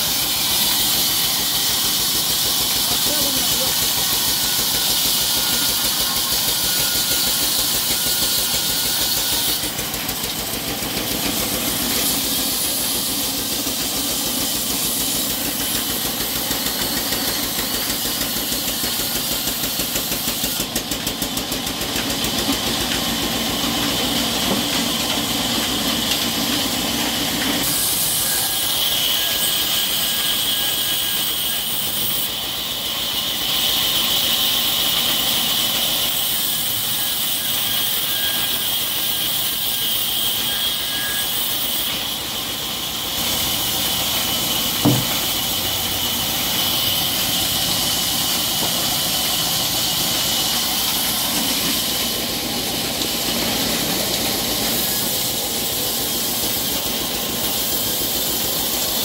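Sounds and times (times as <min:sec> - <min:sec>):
bandsaw cutting through log: 0:00.0 - 0:59.0.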